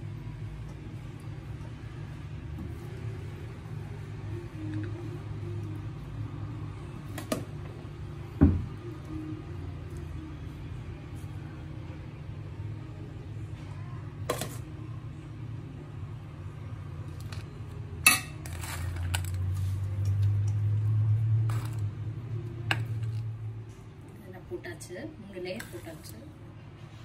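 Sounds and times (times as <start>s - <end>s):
spoon clinking against pot: 18.0s - 18.8s.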